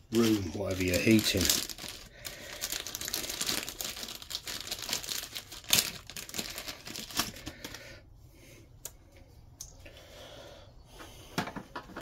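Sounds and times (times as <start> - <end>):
crinkling and rustling: 0.0 - 7.8.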